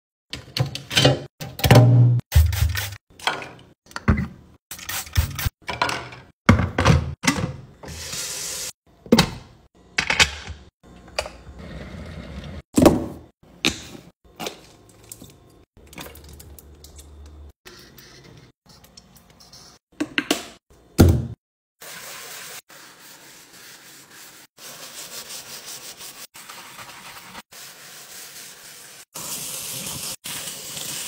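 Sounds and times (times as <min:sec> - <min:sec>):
objects handled at metal sink: 0:02.4 - 0:04.4, 0:05.1 - 0:08.0.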